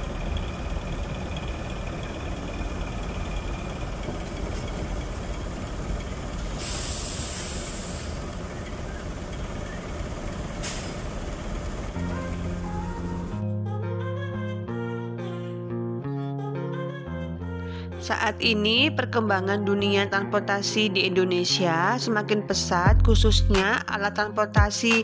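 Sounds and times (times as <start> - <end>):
diesel bus engine running: 0.0 - 13.4
air brake hiss: 6.6 - 8.4, 10.6 - 11.2.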